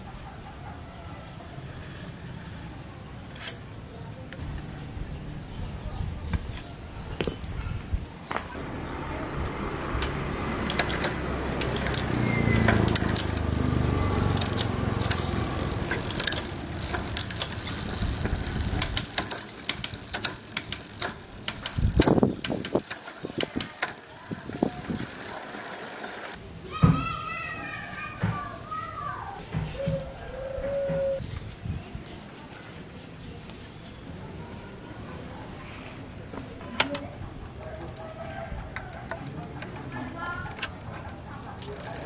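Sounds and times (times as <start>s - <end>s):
bicycle chain whirring: 8.5s - 26.4s, 37.6s - 42.0s
freewheel clicks: 8.6s - 26.4s, 37.5s - 42.0s.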